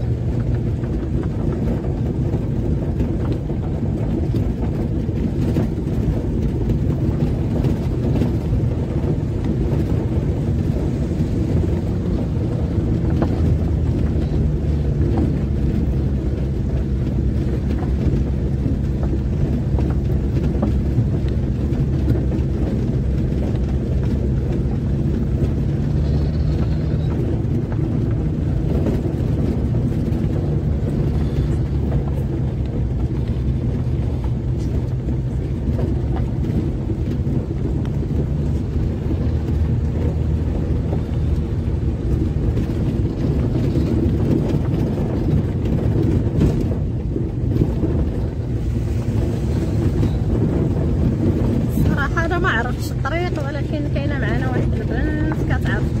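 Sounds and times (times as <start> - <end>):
car engine running: 0.0 - 56.0
tyre and road noise: 0.0 - 56.0.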